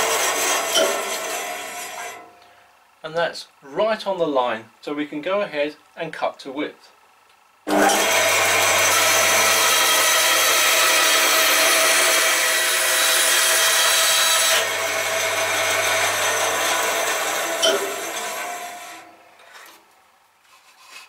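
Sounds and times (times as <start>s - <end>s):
band saw cutting wood: 0.0s - 2.3s, 7.7s - 19.8s.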